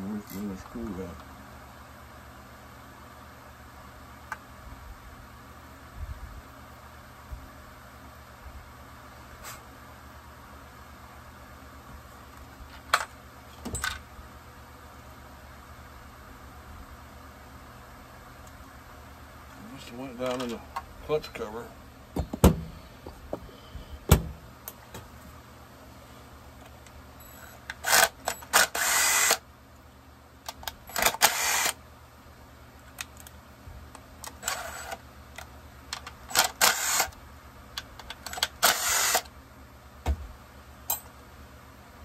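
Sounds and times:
short bursts of a noisy tool: 27.4s - 29.4s, 30.9s - 31.8s, 34.4s - 35.0s, 36.3s - 37.2s, 38.3s - 39.3s.

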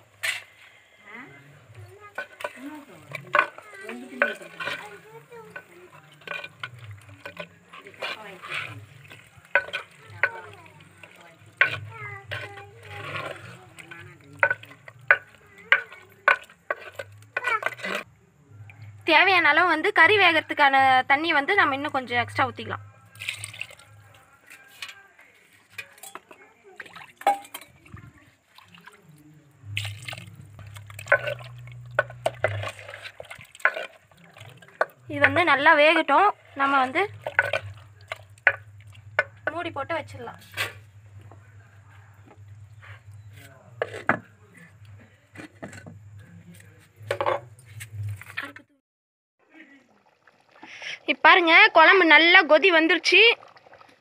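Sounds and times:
ladle scraping clay pot: 0.0s - 0.7s, 1.6s - 18.2s, 29.6s - 48.6s
water splashing and dripping: 1.7s - 18.0s, 21.6s - 24.6s, 25.6s - 41.4s, 49.8s - 51.1s, 52.7s - 54.0s
spices sizzling in oil: 2.0s - 18.1s.

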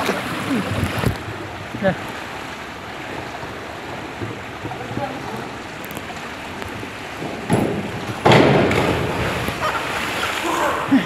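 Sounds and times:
diving board thump: 7.1s - 10.2s
loud splash into water: 8.2s - 10.9s.

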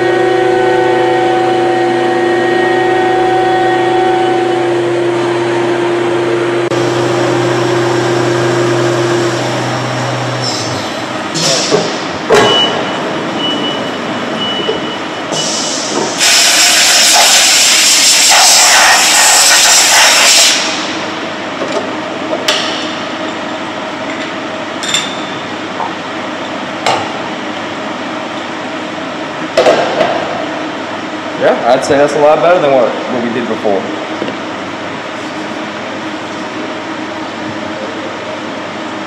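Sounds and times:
milling machine high whine: 0.0s - 29.4s
compressed air gun hissing: 15.4s - 20.9s.

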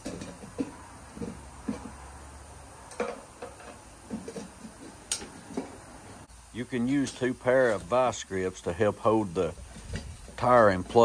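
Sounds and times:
tire tool clicking and scraping: 2.8s - 5.9s.

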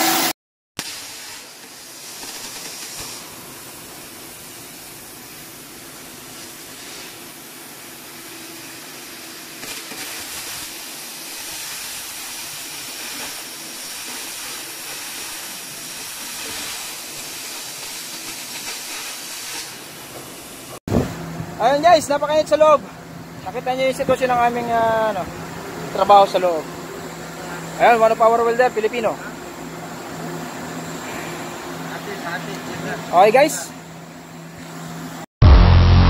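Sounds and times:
welding arc sizzling: 0.0s - 20.8s.

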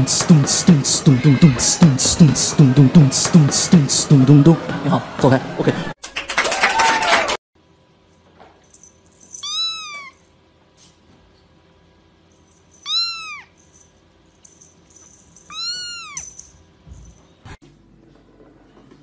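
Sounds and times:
kitten meowing: 9.4s - 10.2s, 12.8s - 13.5s, 15.5s - 16.3s.

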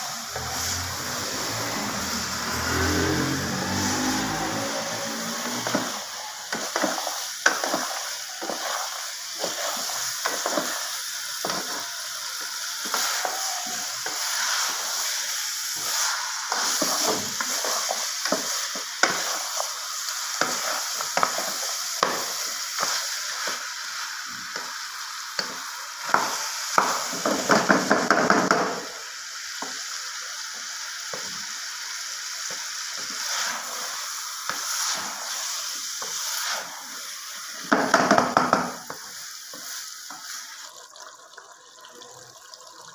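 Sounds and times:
vegetables sizzling in a pan: 0.0s - 41.0s
wooden spoon scraping a pan: 0.3s - 10.8s, 15.8s - 19.7s.

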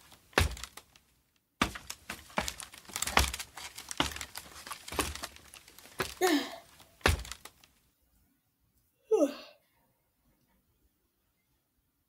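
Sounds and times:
footsteps on a ladder: 0.0s - 1.0s, 1.6s - 7.6s
crinkling and rustling: 0.0s - 7.9s.

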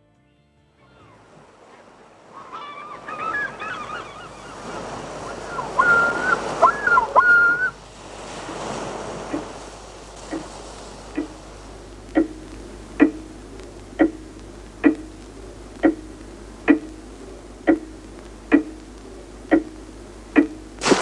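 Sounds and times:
wind: 0.6s - 21.0s
surf: 0.8s - 21.0s
birds calling: 2.2s - 7.8s.

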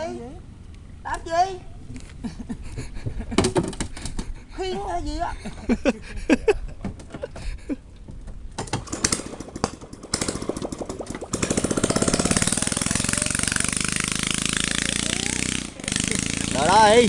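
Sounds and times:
scattered knocks: 2.7s - 4.3s
small engine running: 8.8s - 17.0s.

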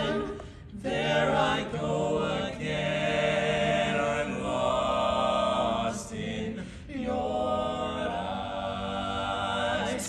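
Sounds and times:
quartet singing a cappella: 0.0s - 10.0s
person breathing: 6.6s - 6.9s.

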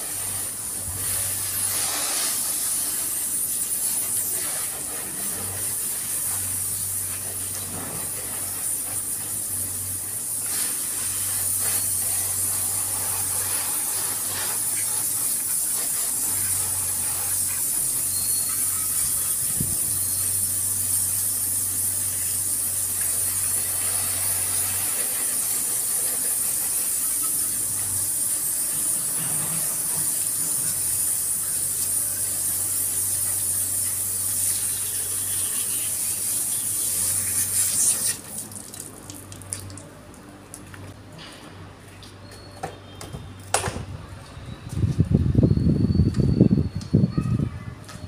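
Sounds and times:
hose water spraying: 0.0s - 39.9s
water dripping: 38.2s - 40.8s.

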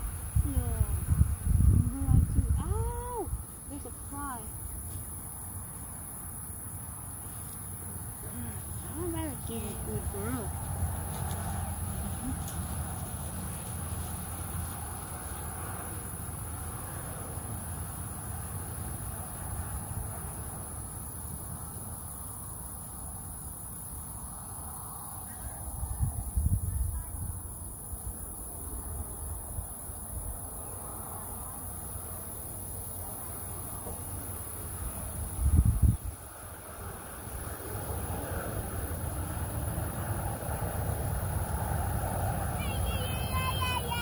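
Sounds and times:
low rumble on the microphone: 0.0s - 3.4s
insect chorus: 0.0s - 44.0s.

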